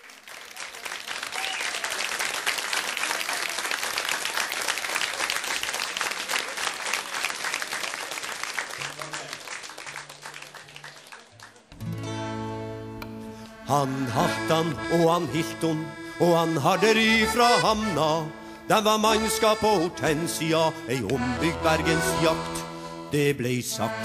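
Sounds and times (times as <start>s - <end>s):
audience applauding: 0.0s - 11.8s
band playing held chords: 11.8s - 24.0s.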